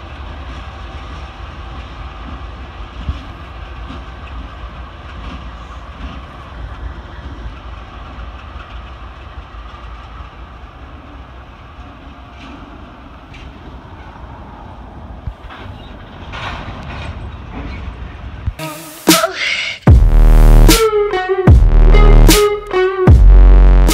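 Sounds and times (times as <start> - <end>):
wheels clicking on rails: 0.0 - 18.6
freight train rumbling past: 0.0 - 23.9.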